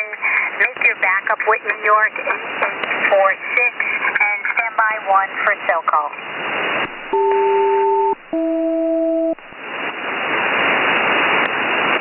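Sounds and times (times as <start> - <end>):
shortwave radio static: 0.0 - 8.5
two-tone radio chords: 6.8 - 9.6.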